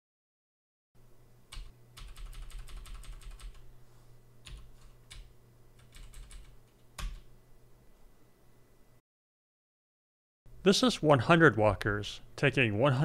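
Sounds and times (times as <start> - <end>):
computer keyboard typing: 1.5 - 3.6, 4.4 - 7.3.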